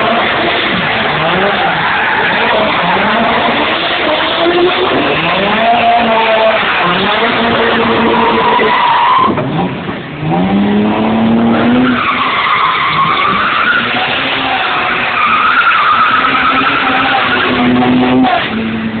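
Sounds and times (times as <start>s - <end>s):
car engines revving: 0.0s - 19.0s
tyres squealing: 11.5s - 18.6s.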